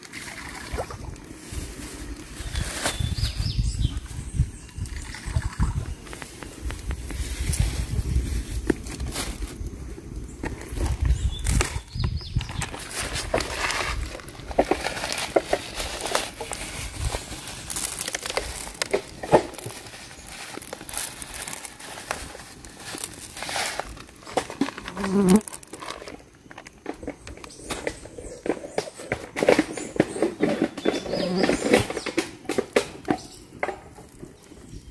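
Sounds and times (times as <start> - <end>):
plastic crinkling: 10.4 - 27.2
salt grains pattering on meat: 15.9 - 24.3.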